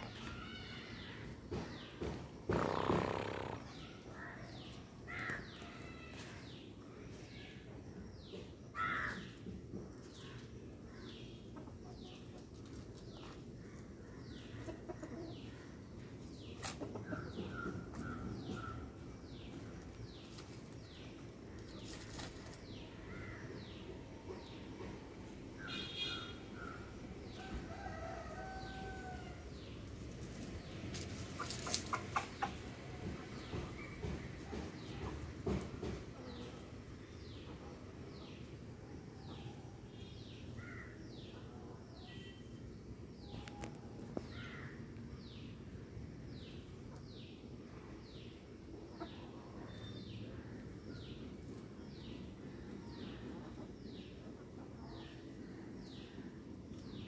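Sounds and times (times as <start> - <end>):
outdoor ambience: 0.0 - 57.0
chickens clucking softly: 14.3 - 15.5, 16.5 - 18.7, 30.2 - 36.7, 48.8 - 49.8.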